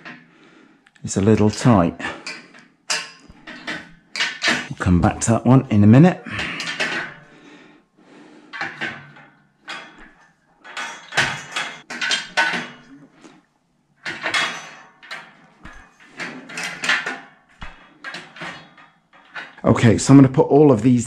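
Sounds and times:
metal slats clattering on frame: 1.3s - 7.4s, 8.5s - 13.1s, 14.0s - 19.7s.

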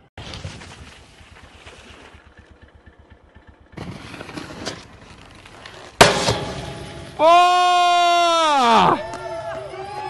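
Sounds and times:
snowboard scraping over snow: 0.0s - 2.4s, 3.7s - 6.6s
loud thump: 6.0s - 7.2s.

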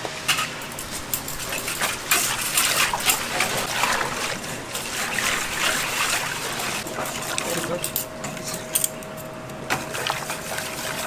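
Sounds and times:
water splashing and sloshing: 0.3s - 8.4s, 9.6s - 11.0s.

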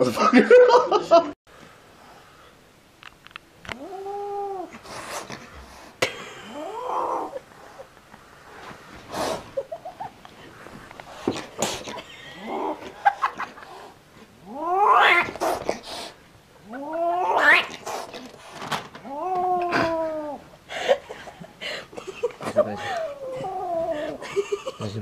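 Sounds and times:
kitten yowling: 3.7s - 4.7s, 6.5s - 7.4s, 14.4s - 15.4s, 16.7s - 17.8s, 19.0s - 20.4s
kitten growling: 3.7s - 5.5s, 6.4s - 7.5s, 11.6s - 13.0s, 13.7s - 15.9s, 16.6s - 18.4s, 19.0s - 20.5s, 22.8s - 24.3s.

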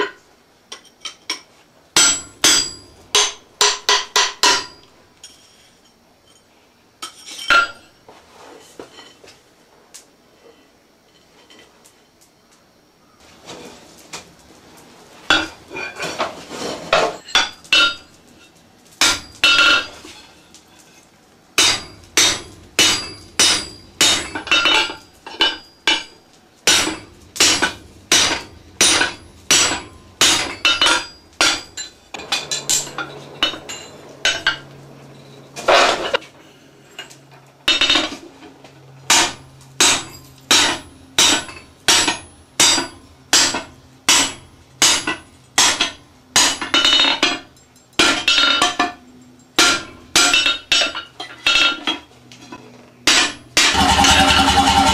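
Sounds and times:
hammer striking steel on anvil: 2.0s - 4.9s, 19.0s - 19.9s, 21.6s - 34.7s, 39.1s - 47.4s, 49.6s - 51.8s, 53.1s - 54.9s.

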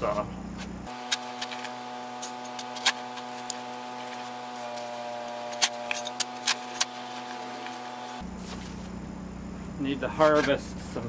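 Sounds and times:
steady hum: 0.0s - 11.0s
shovel scraping soil: 0.9s - 8.8s.

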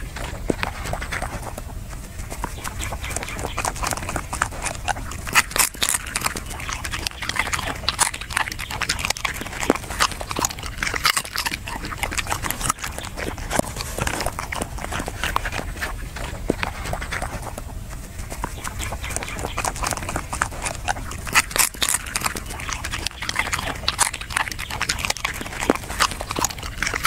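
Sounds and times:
dog chewing crunchily: 0.0s - 27.0s.

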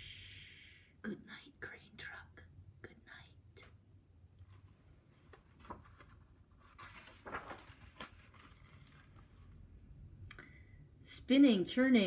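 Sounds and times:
book pages rustling: 4.4s - 9.6s.

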